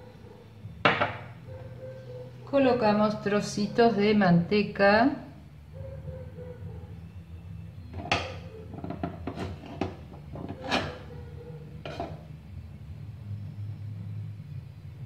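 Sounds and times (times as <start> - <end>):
steady low hum: 0.0 - 15.0
kitchenware clinking and knocking: 0.8 - 1.3, 7.9 - 11.2, 11.8 - 12.3.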